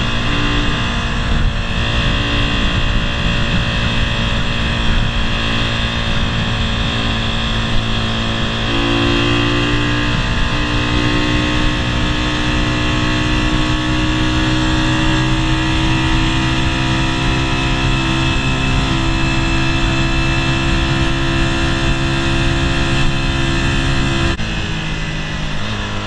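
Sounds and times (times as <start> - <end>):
rushing riding noise: 0.0 - 13.8
motorcycle engine cruising: 0.0 - 26.0.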